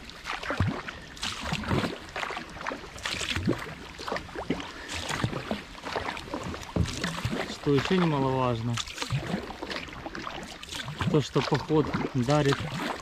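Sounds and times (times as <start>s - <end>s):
paddle splashing and dripping: 0.0s - 13.0s.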